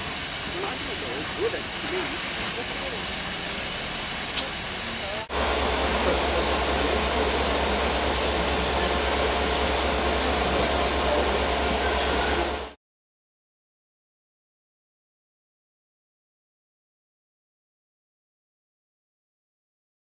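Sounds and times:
steam hissing: 0:00.0 - 0:12.8
voices: 0:00.4 - 0:12.8.

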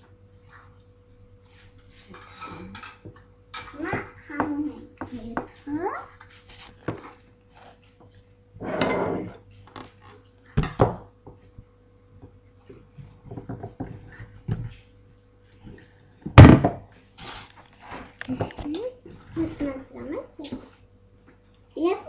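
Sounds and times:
loud thump: 0:16.4 - 0:16.8.

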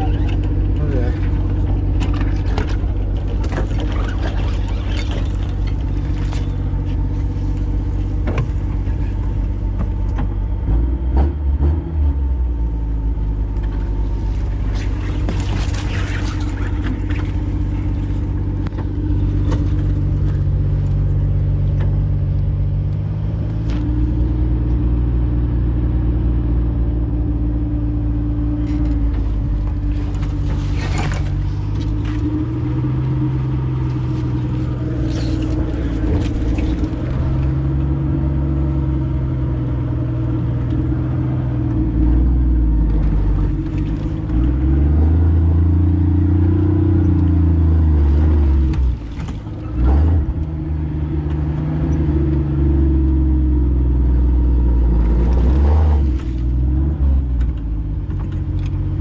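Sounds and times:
knocks and clatters: 0:00.0 - 0:11.3
engine running at crawling speed: 0:00.0 - 0:59.0.

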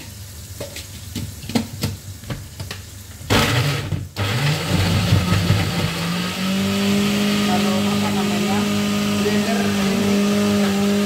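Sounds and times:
light frying: 0:00.0 - 0:04.2
electric blender grinding: 0:03.3 - 0:11.0.

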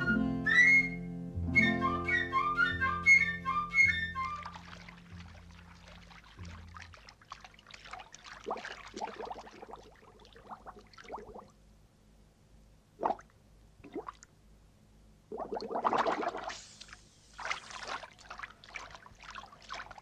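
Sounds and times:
bathwater splashing and pouring: 0:04.2 - 0:11.5, 0:15.3 - 0:20.0.

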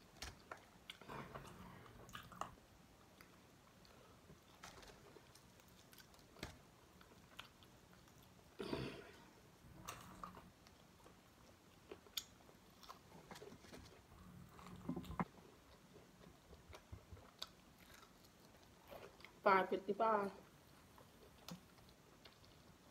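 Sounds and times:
chewing and biting food: 0:00.2 - 0:08.5, 0:09.8 - 0:19.4.

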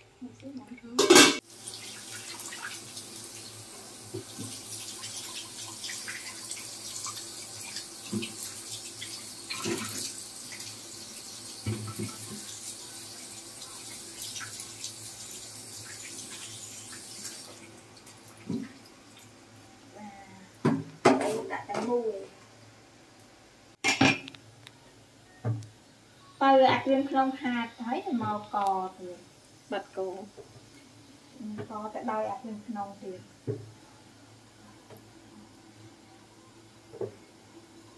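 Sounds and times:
metal pot lid clanking: 0:01.0 - 0:01.4
tap water running into sink: 0:01.0 - 0:19.3, 0:36.9 - 0:37.2.

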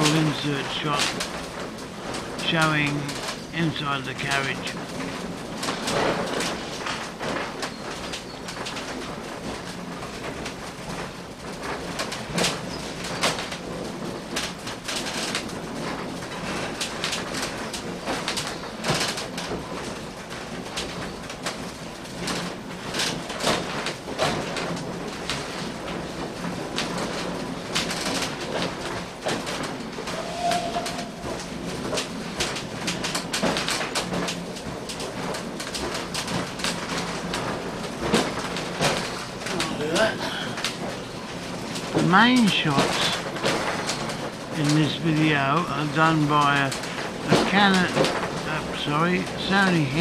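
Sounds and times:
clanks and rattles: 0:00.0 - 0:42.1
railway carriage running on track: 0:00.0 - 0:50.0.

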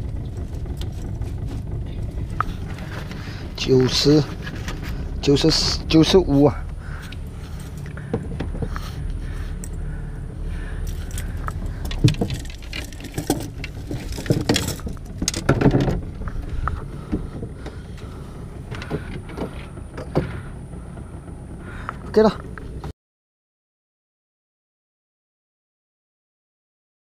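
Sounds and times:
steady low rumble: 0:00.0 - 0:22.9
knocks and clatter on wooden floor: 0:11.2 - 0:18.1.

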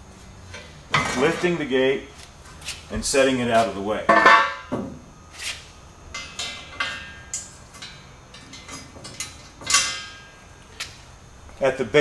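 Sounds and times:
metal clank: 0:06.1 - 0:10.4
metal gate clinking and rattling: 0:06.2 - 0:10.4.

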